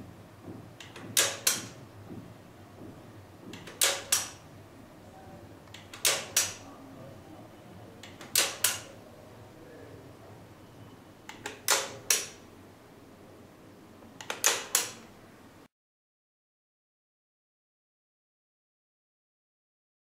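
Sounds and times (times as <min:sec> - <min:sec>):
slide projector clicking: 0:00.8 - 0:01.8, 0:03.5 - 0:04.4, 0:05.6 - 0:06.7, 0:08.0 - 0:09.0, 0:11.3 - 0:12.4, 0:14.2 - 0:15.1.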